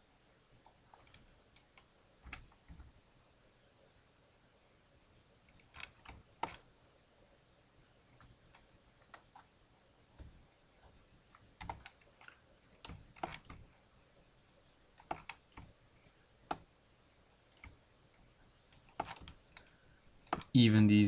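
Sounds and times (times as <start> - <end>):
keyboard and mouse clicks: 0.6 - 2.9, 5.4 - 7.0, 8.1 - 9.5, 10.2 - 10.7, 11.3 - 14.2, 14.9 - 16.7, 17.5 - 20.5.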